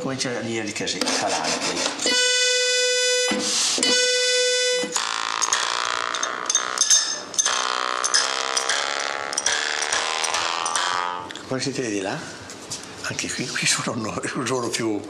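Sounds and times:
file scraping metal reed: 1.0s - 2.6s, 4.9s - 11.2s.

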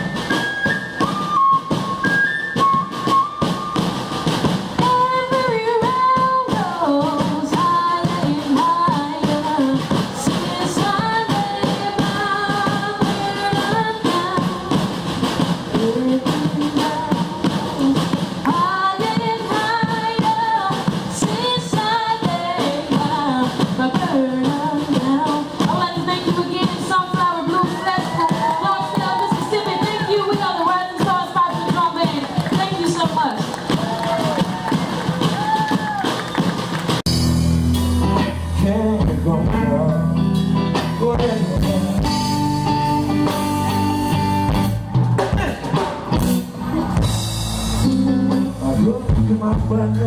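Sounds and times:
snare and bass drums: 0.0s - 50.0s
woman singing: 4.8s - 14.9s, 15.7s - 33.4s.

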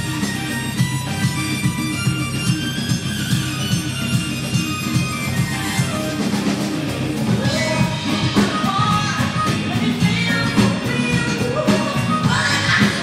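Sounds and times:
congas: 0.0s - 13.0s
live latin jazz funk band: 0.0s - 13.0s
woman singing: 7.4s - 13.0s.

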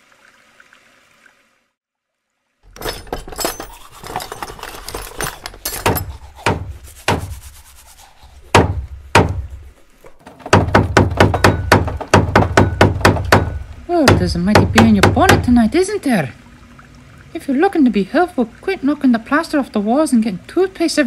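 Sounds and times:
toothbrush scrubbing: 6.0s - 8.6s
hammer tapping on wall: 8.5s - 9.5s, 10.5s - 15.6s.

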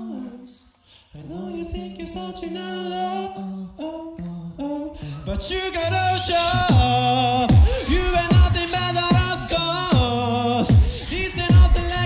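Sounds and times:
beatboxing mouth percussion: 4.1s - 12.0s.

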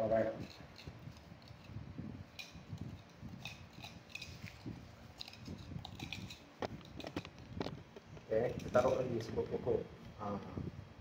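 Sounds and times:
spoon stirring in a mug: 0.3s - 7.2s.

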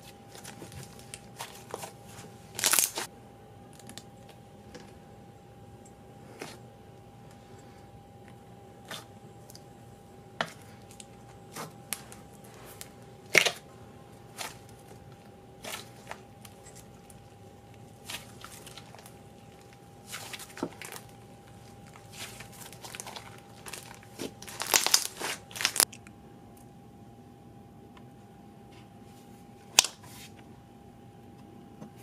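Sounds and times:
hands squishing slime: 0.1s - 3.1s, 10.4s - 25.9s.

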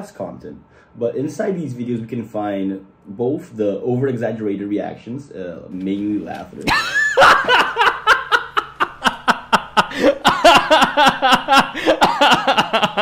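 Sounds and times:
man laughing hard: 6.7s - 13.0s.

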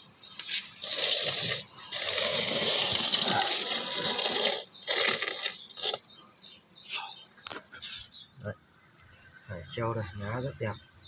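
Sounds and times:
wire rustling: 0.4s - 6.1s.

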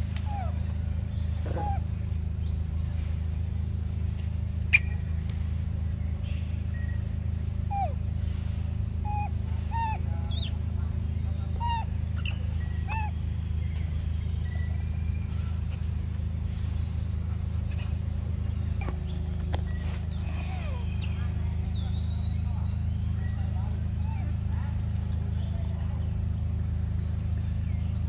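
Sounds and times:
steady low hum: 0.0s - 28.0s
short chirping calls: 4.6s - 5.3s, 9.0s - 15.9s.

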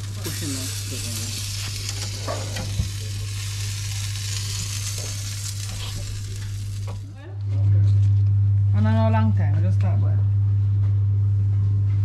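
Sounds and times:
meat sizzling: 0.0s - 7.1s
low steady hum: 0.0s - 12.0s.

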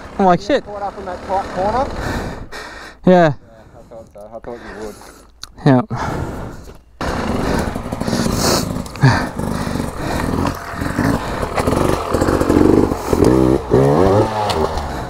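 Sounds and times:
dirt bike engine revving: 0.0s - 2.7s, 6.4s - 15.0s.

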